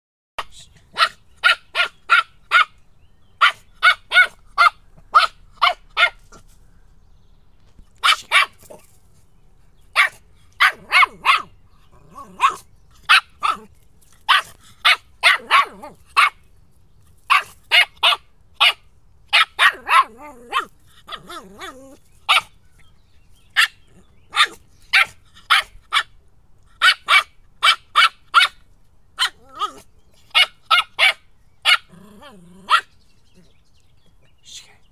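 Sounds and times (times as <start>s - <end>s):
puppy barking sharply: 0.9s - 2.8s, 3.4s - 6.2s, 8.0s - 8.8s, 10.0s - 11.5s, 12.3s - 13.7s, 14.3s - 16.4s, 17.3s - 21.7s, 23.6s - 26.1s, 26.8s - 28.6s, 29.2s - 31.9s, 32.7s - 32.9s.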